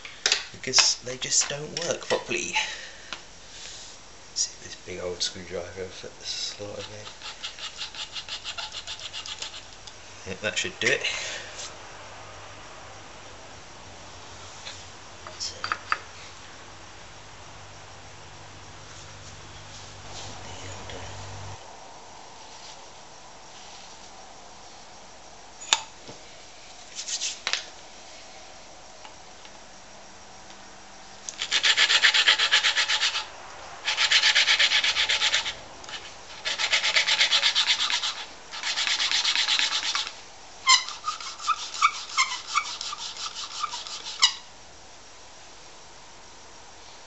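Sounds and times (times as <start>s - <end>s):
valve grinding gritty rasping: 6.3s - 9.9s, 31.3s - 44.4s.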